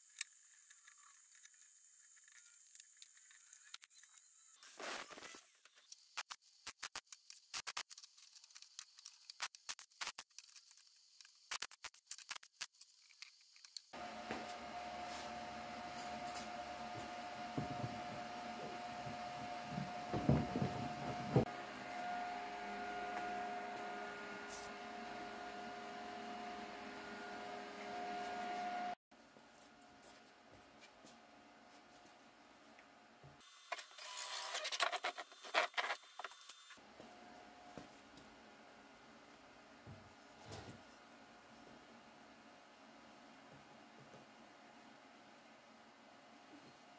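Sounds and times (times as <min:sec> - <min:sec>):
room noise hum: 0:14.0 - 0:33.4
cordless drill boring plastic: 0:33.7 - 0:36.7.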